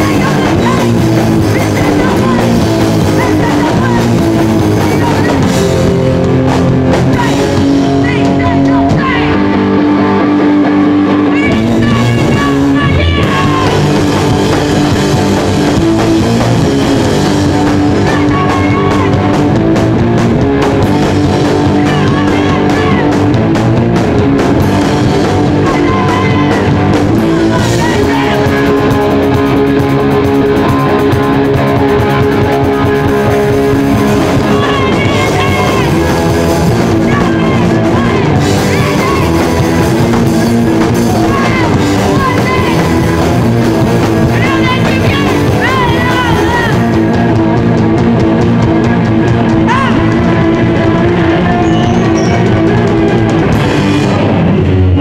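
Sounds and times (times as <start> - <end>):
person singing into microphone: 0.0 - 5.7, 7.0 - 9.5, 11.1 - 14.2, 17.6 - 19.3, 21.6 - 23.4, 25.4 - 29.0, 33.3 - 43.4, 44.2 - 47.2, 49.5 - 53.3
bass guitar: 0.0 - 55.0
drum kit: 0.0 - 55.0
electric guitars: 0.0 - 55.0.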